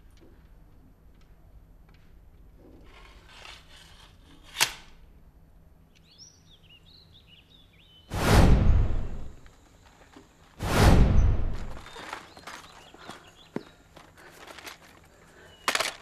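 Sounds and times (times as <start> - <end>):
birds chirping: 5.9 - 8.2, 11.2 - 16.0
loud rushing whoosh: 8.1 - 9.4, 10.6 - 11.8.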